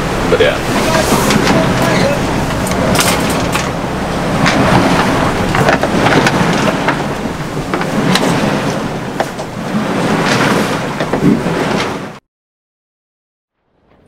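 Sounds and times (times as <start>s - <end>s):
water rushing against hull: 0.0s - 12.2s
knocks and clatters of loose gear: 2.6s - 3.8s.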